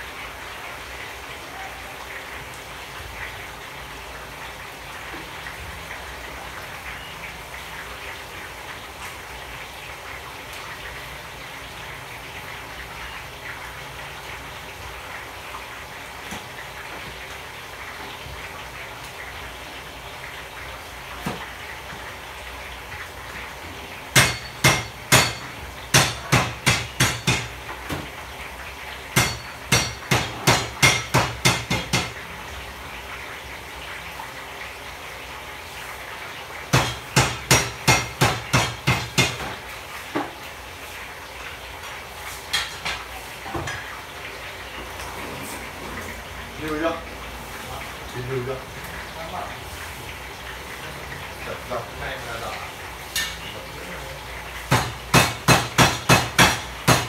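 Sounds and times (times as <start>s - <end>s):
knife chopping on cutting board: 54.7s - 57.0s.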